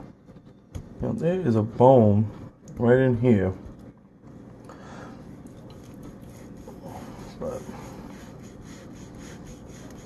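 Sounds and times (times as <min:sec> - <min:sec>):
knife sawing through meat: 0:06.2 - 0:10.0.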